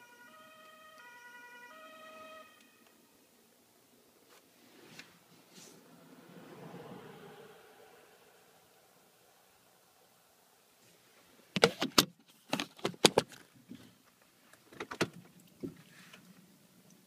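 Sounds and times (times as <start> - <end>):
handling clicks and knocks: 11.6 - 15.8.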